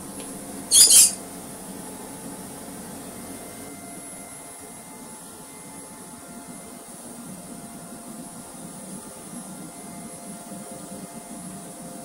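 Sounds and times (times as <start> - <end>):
high-pitched scratchy squeak: 0.7 - 1.2.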